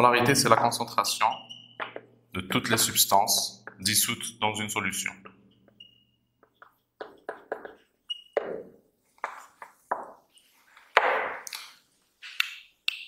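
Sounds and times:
marker squeaking on whiteboard: 1.1 - 2.2, 5.2 - 11.0.

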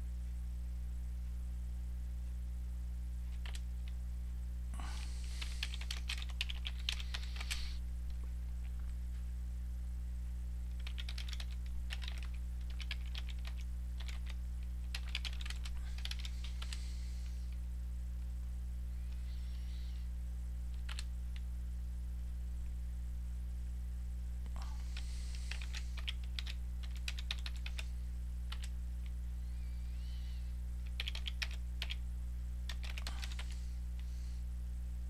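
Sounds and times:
steady electrical hum: 0.0 - 35.0
computer keyboard typing: 3.3 - 4.0, 4.9 - 7.8, 10.7 - 16.8, 20.7 - 21.4, 24.8 - 27.9, 28.5 - 28.7, 30.8 - 32.0, 32.7 - 33.6.

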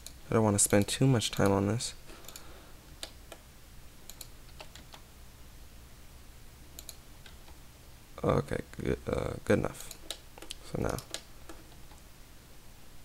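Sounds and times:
keyboard and mouse clicks: 2.2 - 3.4, 4.1 - 5.1, 6.8 - 7.6, 9.9 - 12.0.

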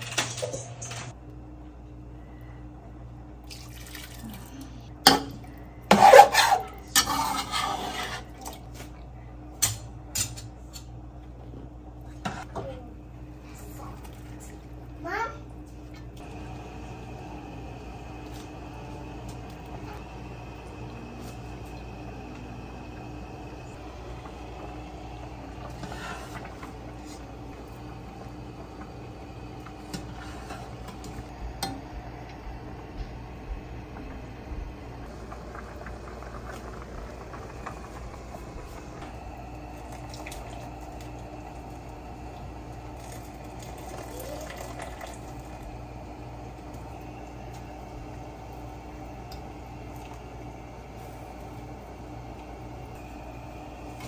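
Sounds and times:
pots and utensils clattering: 0.0 - 1.1, 5.0 - 8.7
utensils and dishes clinking: 0.0 - 1.2
low hum: 0.2 - 6.0, 8.6 - 54.0.

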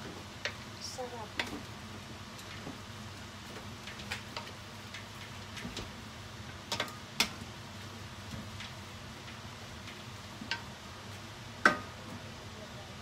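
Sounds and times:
wooden spatula knocking on a pot: 11.6 - 11.9.

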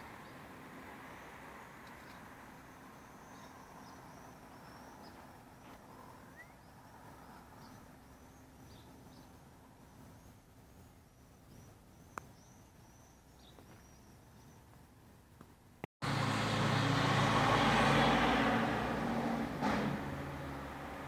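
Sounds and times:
small bird chirping: 1.1 - 14.8.

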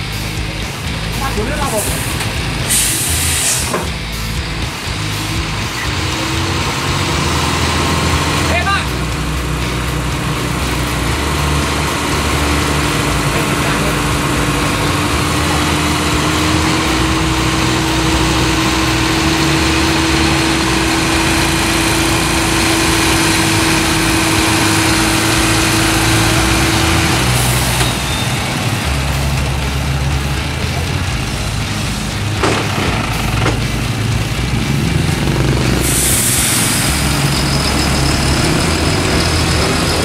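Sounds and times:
diesel truck engine idling: 0.0 - 40.0
steady whine: 0.0 - 40.0
short hiss: 1.8 - 3.9.

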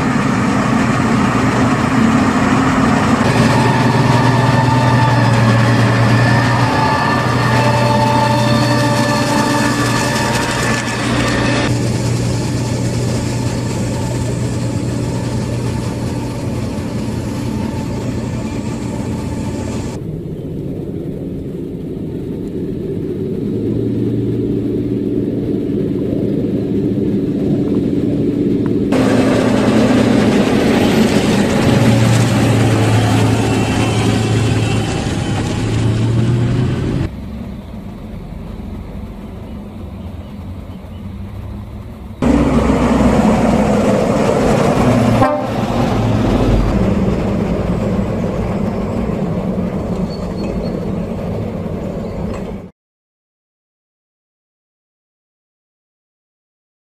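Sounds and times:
tractor diesel engine running: 0.0 - 20.0, 27.4 - 52.6.

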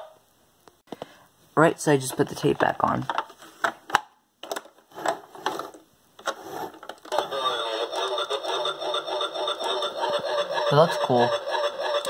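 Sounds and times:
clicks of handling plastic toy: 2.1 - 7.3
muffled toy siren warbling: 7.2 - 12.0.

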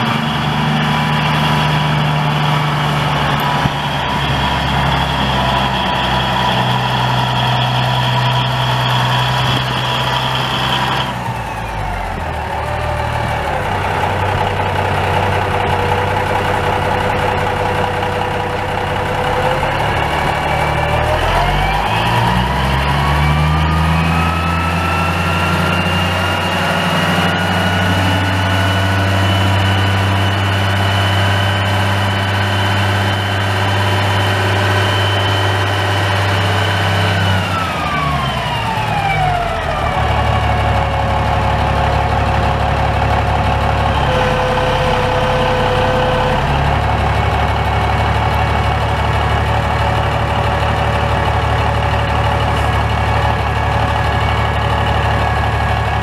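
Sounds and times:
diesel engine idling and revving: 0.0 - 56.0.

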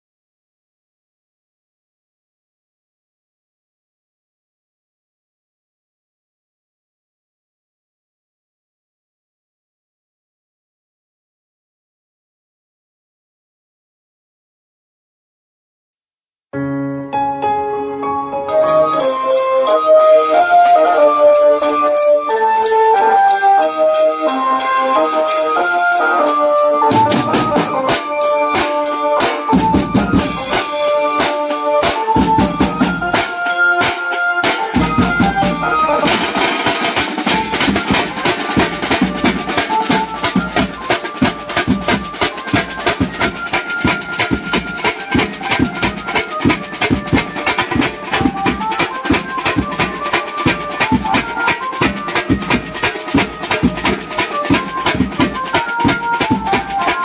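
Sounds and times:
electronic keyboard melody: 16.6 - 57.0
drums playing fast: 26.8 - 57.0.

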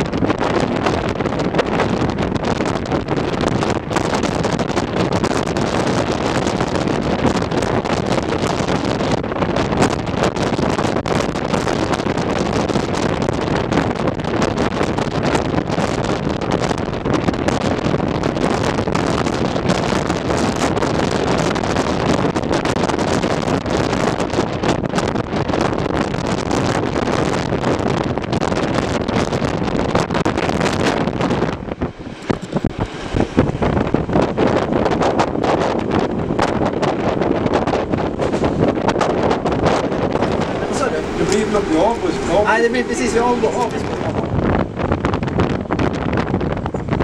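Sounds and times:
wind buffeting microphone: 0.0 - 47.0
train running noise: 30.2 - 46.9.

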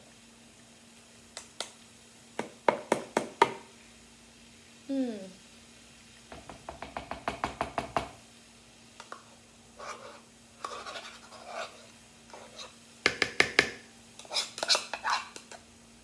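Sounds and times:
plastic cup knocking on bowl: 6.3 - 8.1
utensil scraping cup: 9.8 - 12.7.

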